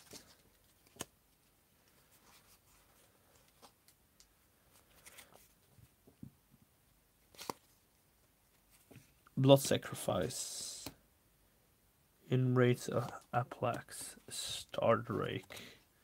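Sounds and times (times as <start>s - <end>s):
cards rustling: 0.0s - 6.0s, 7.2s - 7.8s.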